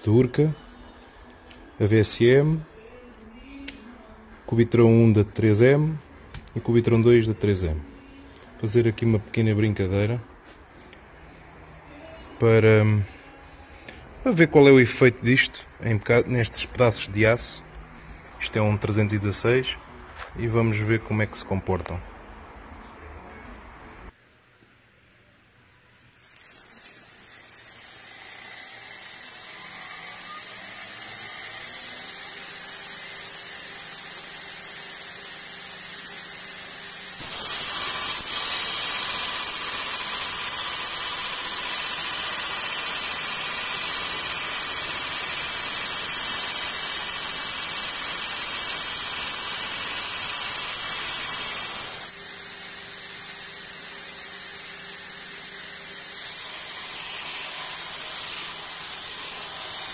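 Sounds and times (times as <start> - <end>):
steel bar grinding hiss: 26.6 - 59.9
belt grinder running: 26.8 - 59.9.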